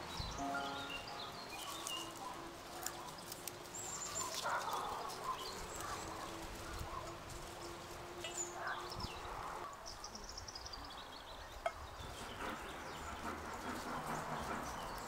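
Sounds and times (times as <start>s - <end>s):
leaves rustling: 0.0s - 10.2s
small birds chirping: 0.0s - 15.0s.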